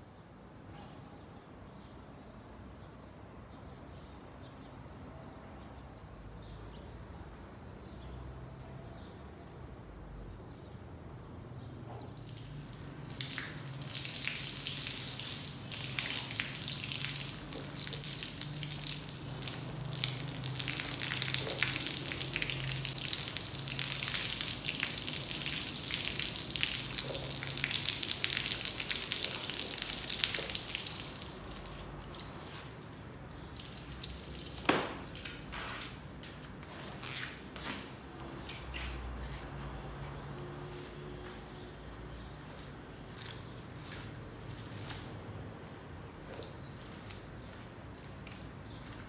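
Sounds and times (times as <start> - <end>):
water splashing onto rug: 12.2 - 40.0, 40.6 - 49.0.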